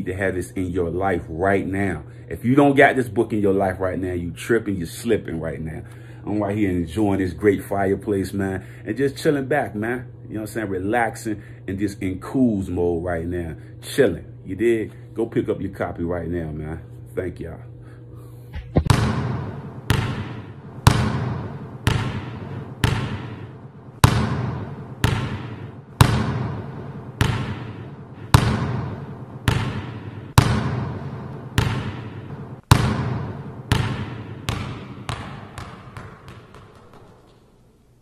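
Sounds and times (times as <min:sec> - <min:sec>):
basketball bouncing with echo: 0:18.6 - 0:37.6.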